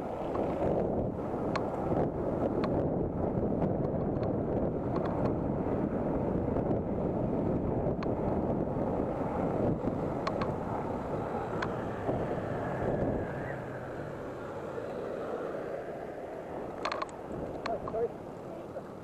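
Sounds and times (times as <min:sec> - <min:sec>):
wind rushing over microphone: 0:00.0 - 0:19.0
sharp clicks: 0:10.2 - 0:10.5, 0:16.8 - 0:18.1.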